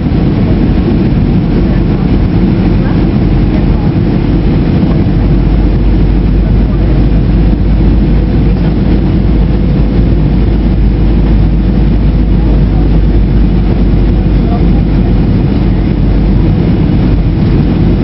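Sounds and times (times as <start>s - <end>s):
faint steady hum: 0.0s - 18.0s
jet engine and airflow rush: 0.0s - 18.0s.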